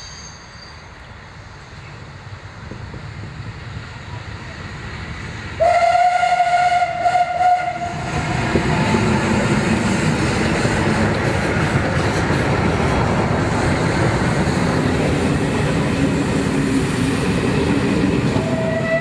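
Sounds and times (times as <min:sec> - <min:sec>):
steam train running: 0:00.0 - 0:19.0
steam whistle: 0:05.6 - 0:08.2, 0:18.4 - 0:19.0.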